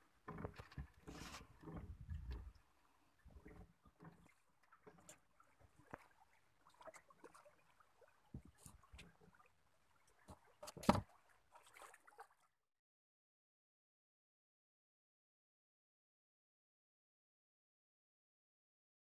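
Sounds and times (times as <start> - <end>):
faint knocks and rustles: 0.1 - 7.3, 8.2 - 9.4, 10.2 - 11.2.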